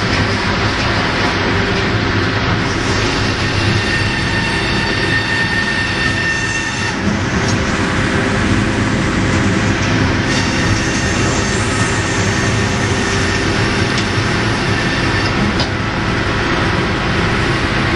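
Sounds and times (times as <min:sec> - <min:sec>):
thin high whine: 0:02.6 - 0:15.4.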